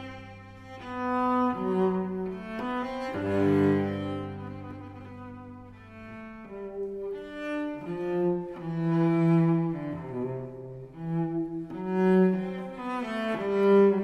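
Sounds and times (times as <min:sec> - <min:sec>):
bowed strings background music: 0:00.0 - 0:14.0.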